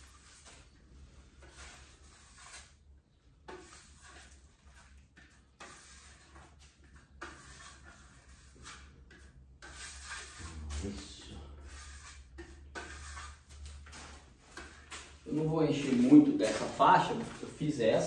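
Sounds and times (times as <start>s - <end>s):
hand tool scraping putty on wall: 0.0s - 0.8s, 1.4s - 2.8s, 3.4s - 17.5s.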